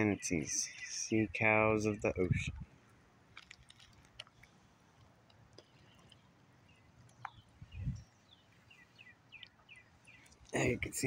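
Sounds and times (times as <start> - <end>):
water ripples ticking and dripping: 2.6 - 11.0
faint bird chirps: 5.6 - 11.0.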